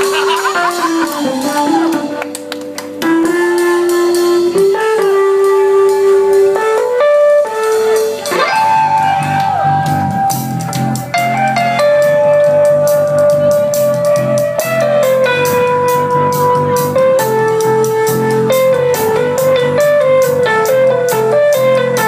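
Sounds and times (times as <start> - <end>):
sliding lead melody: 0.0 - 22.0.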